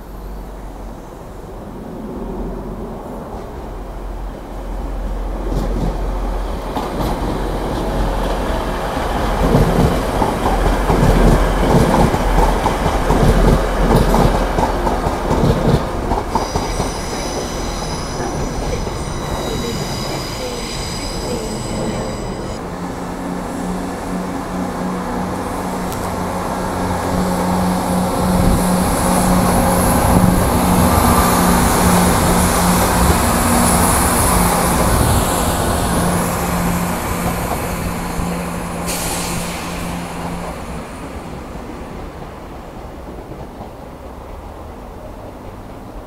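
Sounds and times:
train wheels rumbling on rail: 0:00.0 - 0:46.0.

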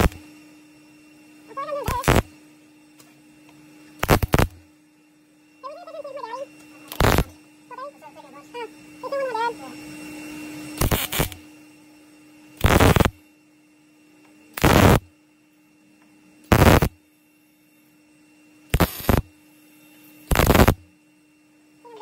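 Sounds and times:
welder arc bursts: 0:00.0 - 0:00.3, 0:01.5 - 0:02.4, 0:04.0 - 0:04.7, 0:06.2 - 0:09.7, 0:10.8 - 0:11.5, 0:12.6 - 0:13.2, 0:14.5 - 0:15.1, 0:16.5 - 0:17.0, 0:18.7 - 0:19.3, 0:20.2 - 0:20.9
steady hum: 0:00.0 - 0:22.0.

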